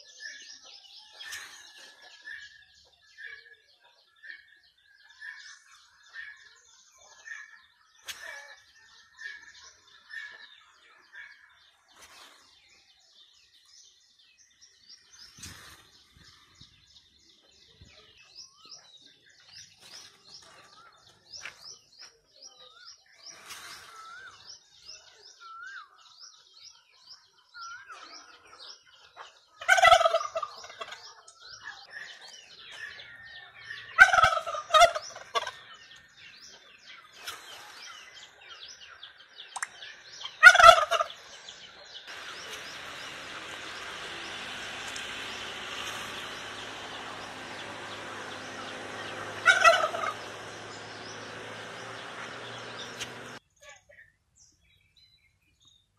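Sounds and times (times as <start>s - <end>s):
small birds chirping: 0.0s - 55.9s
turkey gobbling: 29.6s - 31.0s, 33.7s - 35.8s, 40.2s - 41.3s, 42.1s - 53.4s.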